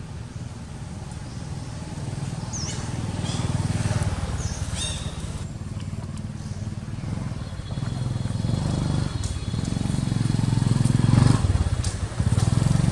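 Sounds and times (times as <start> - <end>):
vehicle engine running: 0.0 - 12.9
high bird chirps: 4.4 - 5.4.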